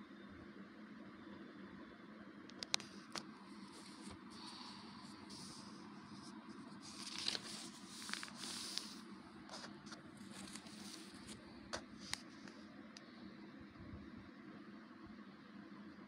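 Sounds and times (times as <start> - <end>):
paper pages rustling: 2.7 - 12.6.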